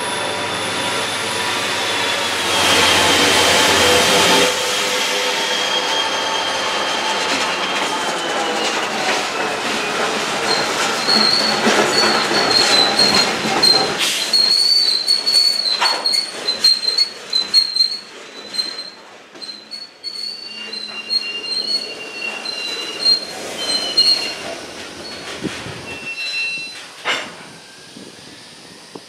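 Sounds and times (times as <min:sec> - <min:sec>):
diesel locomotive engine drone: 0:00.0 - 0:14.8, 0:18.1 - 0:29.0
high wavering wheel squeal: 0:00.0 - 0:29.0
train wheels clicking: 0:06.2 - 0:28.2.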